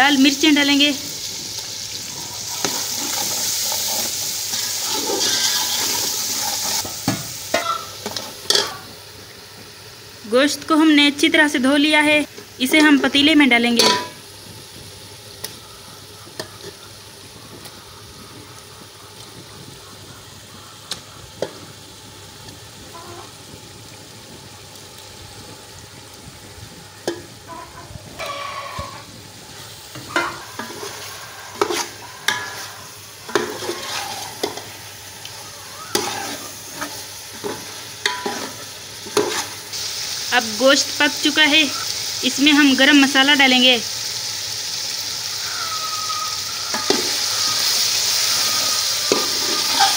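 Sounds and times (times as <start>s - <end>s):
chicken sizzling in oil: 0.0s - 49.9s
steel ladle scraping pot: 2.4s - 6.9s, 27.5s - 29.1s, 29.9s - 34.8s, 35.9s - 39.6s, 49.1s - 49.9s.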